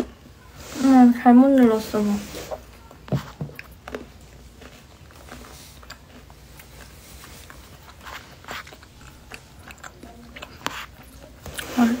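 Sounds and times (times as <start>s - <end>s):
chewing crunchy snack: 3.5s - 12.0s.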